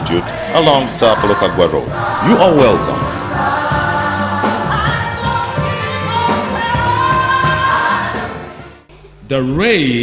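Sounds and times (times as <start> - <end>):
gospel choir singing: 0.0 - 8.9
band accompaniment with steady beat: 1.7 - 8.6.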